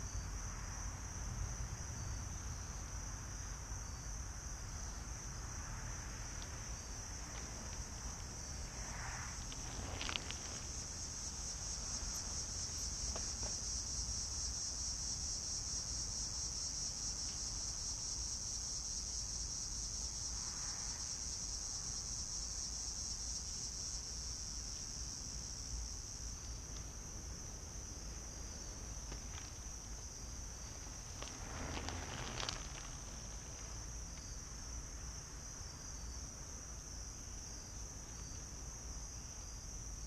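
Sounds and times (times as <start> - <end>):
crickets chirping: 0.0 - 40.0
bike tyres crunching on gravel: 6.3 - 15.1, 26.3 - 34.7.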